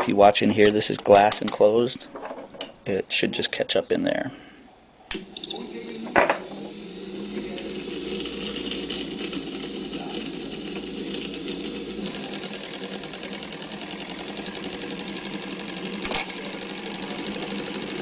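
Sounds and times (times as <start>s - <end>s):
film projector clattering: 5.2s - 18.0s.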